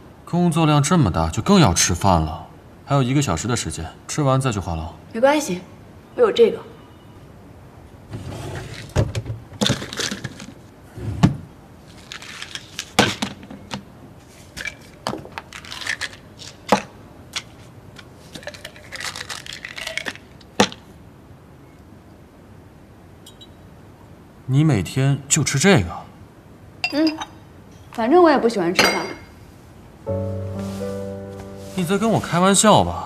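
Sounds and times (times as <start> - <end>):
plastic bottle being opened: 18.3 - 20.8.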